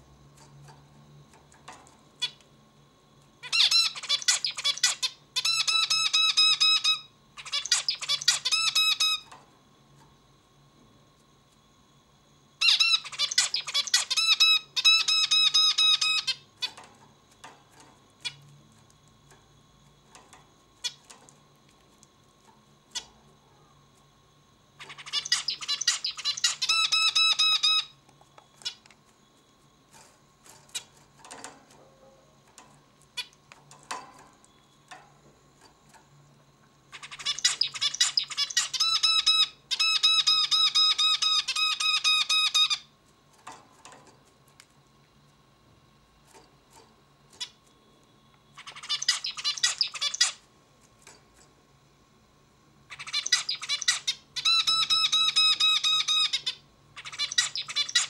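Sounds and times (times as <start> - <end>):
finch singing: 3.4 - 9.3, 12.6 - 16.8, 24.8 - 28.0, 36.9 - 42.9, 48.6 - 50.4, 52.9 - 58.0.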